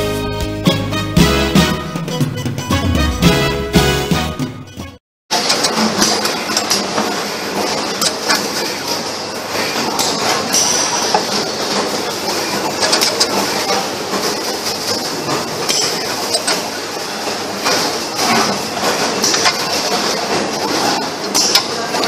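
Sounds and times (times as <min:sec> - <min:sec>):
machine clattering: 0:05.3 - 0:22.0
machine parts clicking and clinking: 0:05.3 - 0:22.0.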